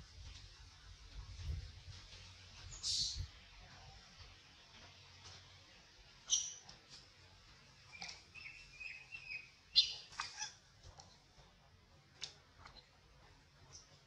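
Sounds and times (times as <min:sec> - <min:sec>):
faint forest background: 0:00.0 - 0:14.0
high-pitched chirps and squeaks: 0:02.7 - 0:03.3, 0:06.2 - 0:06.7, 0:07.9 - 0:10.6.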